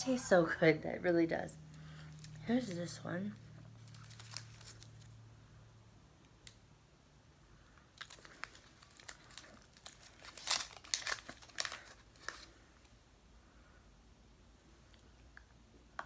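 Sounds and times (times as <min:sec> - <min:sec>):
candy wrapper crinkling: 0:02.1 - 0:05.2, 0:07.9 - 0:12.9.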